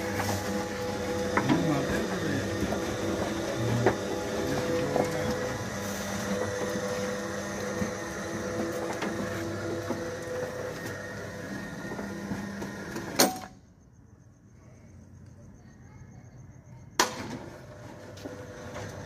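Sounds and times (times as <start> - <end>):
roller shutter motor humming: 0.0 - 13.5, 17.1 - 19.0.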